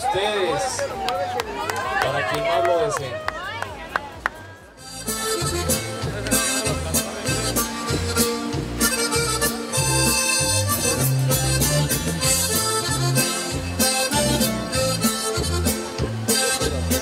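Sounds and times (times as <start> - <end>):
accordion melody: 4.7 - 17.0.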